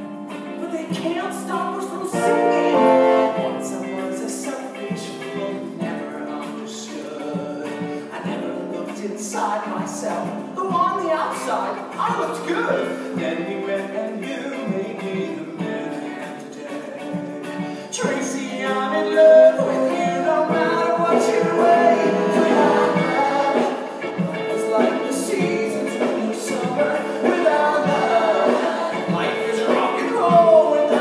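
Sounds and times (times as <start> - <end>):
theatre pit band playing: 0.0 - 31.0
person singing: 0.5 - 31.0.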